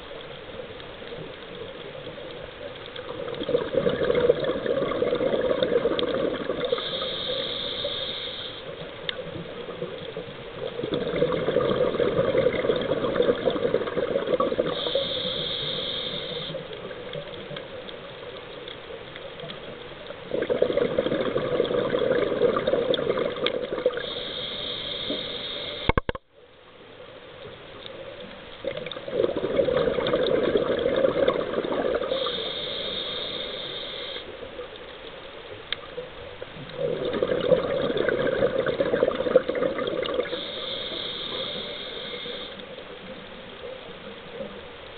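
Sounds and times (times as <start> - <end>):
exhaled bubbles rushing: 3.1 - 6.8, 10.6 - 14.8, 20.3 - 24.1, 28.6 - 32.3, 36.6 - 40.4
regulator inhalation hiss: 6.6 - 9.4, 14.7 - 16.9, 24.0 - 26.0, 32.0 - 34.4, 40.2 - 42.8.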